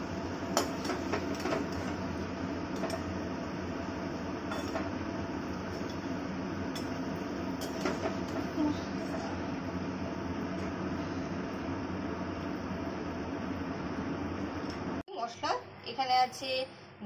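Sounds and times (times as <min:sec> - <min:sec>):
metal spoon clinking on pan: 0:04.5 - 0:04.8.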